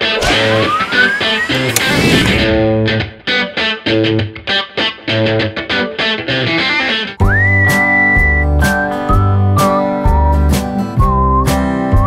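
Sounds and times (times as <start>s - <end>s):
tone gliding upward: 0.0s - 2.9s
guitar playing repeated chords: 2.4s - 12.0s.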